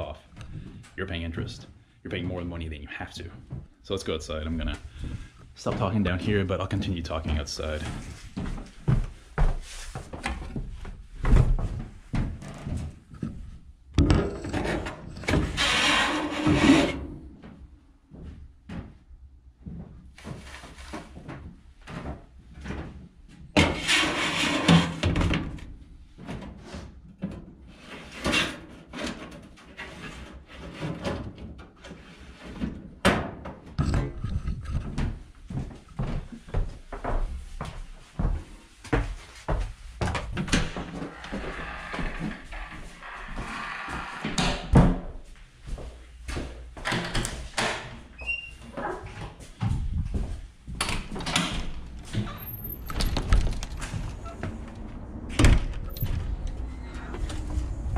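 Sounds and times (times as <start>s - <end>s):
sheet metal scraping: 14.3s - 17.2s, 23.6s - 25.0s.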